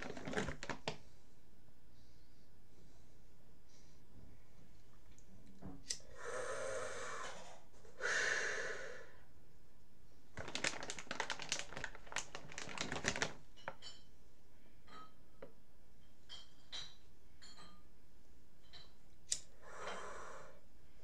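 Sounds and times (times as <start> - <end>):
breath out: 6.0 - 9.2, 19.5 - 20.6
breath drawn through pipe: 6.1 - 9.2, 19.6 - 20.6.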